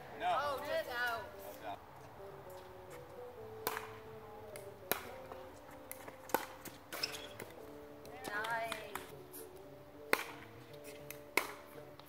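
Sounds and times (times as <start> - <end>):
faint background music: 0.0 - 12.0
paddles hitting plastic ball: 3.6 - 9.1, 10.1 - 12.0.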